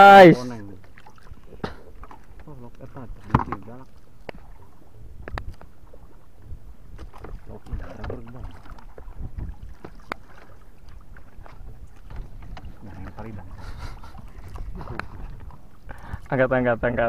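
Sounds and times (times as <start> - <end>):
water slapping against boat hull: 0.7 - 16.3
wind on microphone: 4.3 - 10.1, 10.9 - 17.0.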